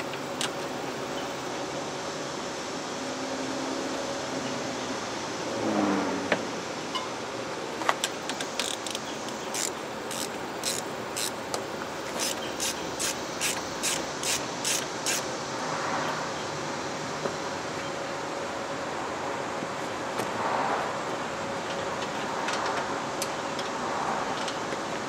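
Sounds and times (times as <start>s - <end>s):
hand ratchet clicking: 8.0s - 11.4s, 12.0s - 15.3s.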